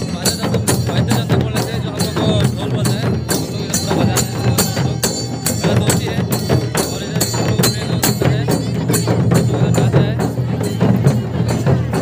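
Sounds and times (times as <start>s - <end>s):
hand drums with jingles: 0.0s - 12.0s.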